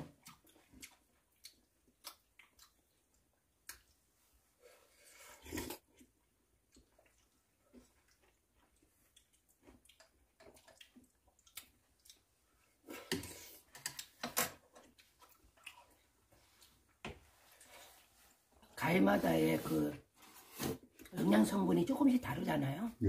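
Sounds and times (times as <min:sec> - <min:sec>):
chewing: 0:00.0 - 0:04.0, 0:05.4 - 0:16.9.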